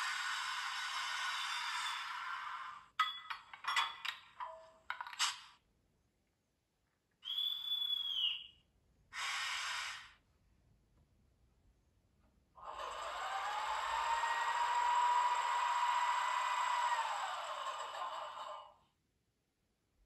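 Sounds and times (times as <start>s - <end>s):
clanks and clicks: 3.0s - 5.6s
air hiss: 9.1s - 10.2s.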